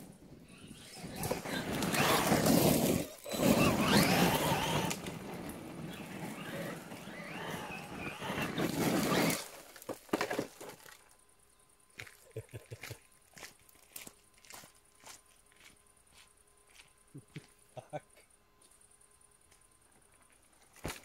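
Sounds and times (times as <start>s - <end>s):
electric motor and gears whining: 0.5s - 9.8s
tyres on loose stones: 0.8s - 11.1s.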